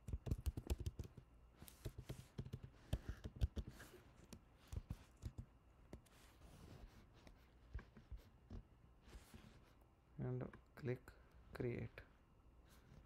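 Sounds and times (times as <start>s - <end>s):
computer keyboard typing: 0.0s - 3.7s.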